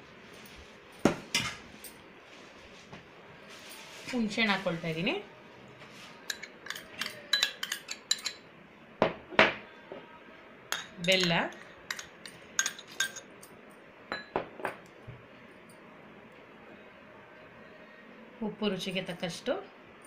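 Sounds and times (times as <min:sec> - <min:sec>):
spoon clinking against steel bowl: 0:06.3 - 0:08.4, 0:10.7 - 0:13.5.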